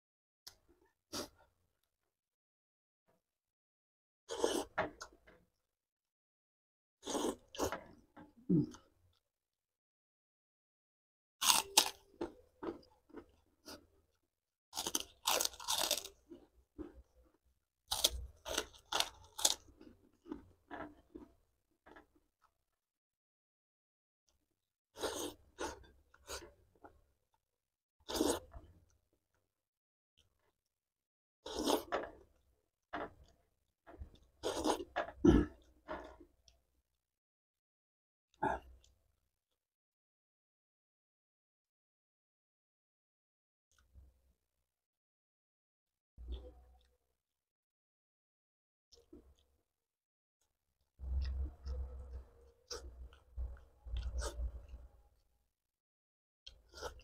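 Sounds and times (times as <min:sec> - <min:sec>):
chewing crunches: 0:11.4 - 0:13.8, 0:14.8 - 0:17.0, 0:17.9 - 0:22.0, 0:34.2 - 0:36.2, 0:51.0 - 0:54.9
crisp cracker crunching: 0:14.8 - 0:16.2, 0:17.9 - 0:20.4.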